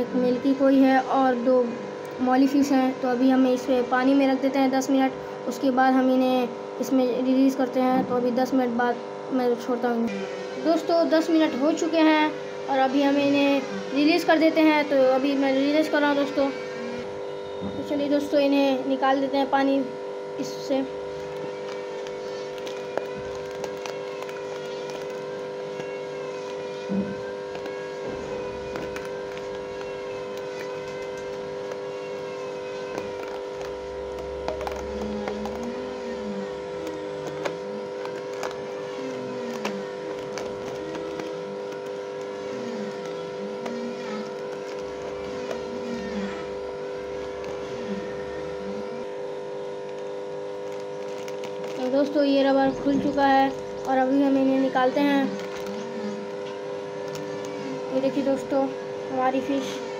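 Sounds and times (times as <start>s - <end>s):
mechanical hum: 0.0s - 59.9s
plastic bag crinkling: 20.4s - 58.6s
plastic bag clicks and rustles in water: 21.2s - 26.6s, 50.6s - 52.2s.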